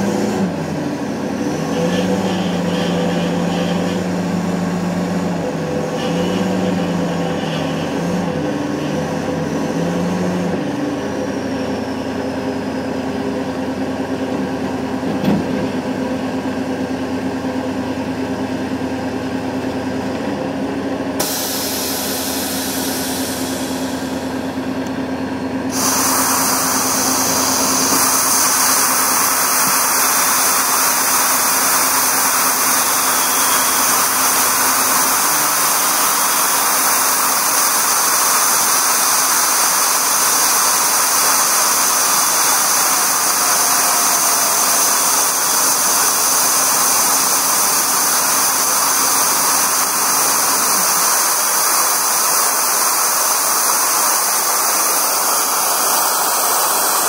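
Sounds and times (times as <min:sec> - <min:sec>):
engine running steadily: 0:00.0 - 0:57.0
loud steady hiss: 0:21.2 - 0:57.0.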